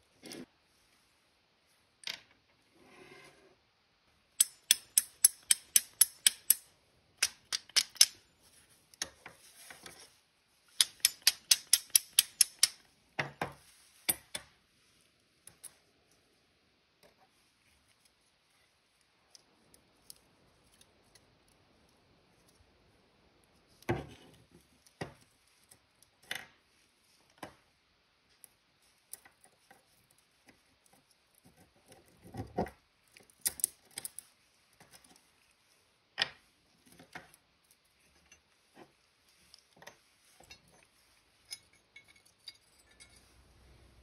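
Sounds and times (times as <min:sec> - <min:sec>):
metal and wooden pieces knocking: 0:04.4 - 0:06.6, 0:07.2 - 0:08.2, 0:10.8 - 0:13.4
metal rings tapping together: 0:04.4 - 0:08.2, 0:10.7 - 0:12.8.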